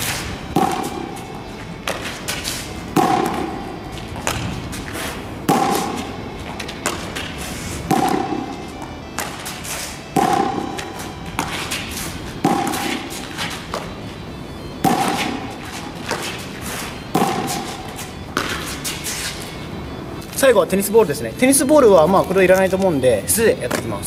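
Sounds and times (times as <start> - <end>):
ball knocking against concrete wall: 0.4 - 1.1, 5.5 - 8.5, 12.4 - 13.0, 18.3 - 18.6.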